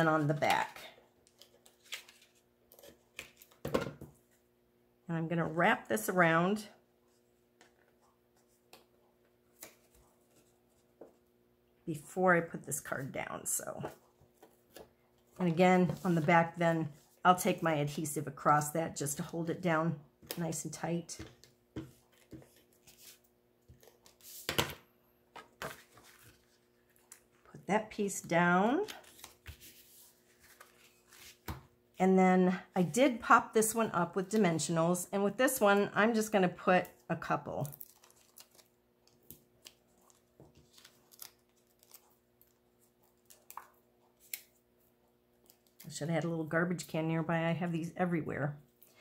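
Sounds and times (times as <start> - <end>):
paper rustling: 1.3 - 3.5, 25.4 - 27.3, 28.8 - 31.6.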